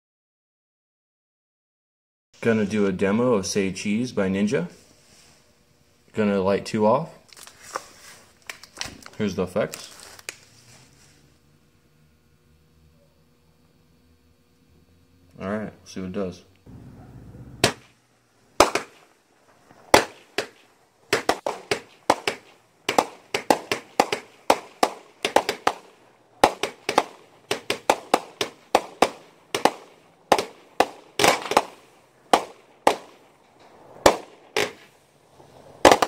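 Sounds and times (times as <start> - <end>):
firework bangs: 16.7 - 36.0.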